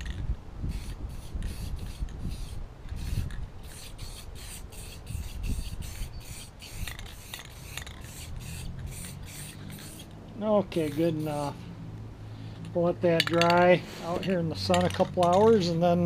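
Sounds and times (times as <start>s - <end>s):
spray can hissing spurts: 0.7s - 11.5s.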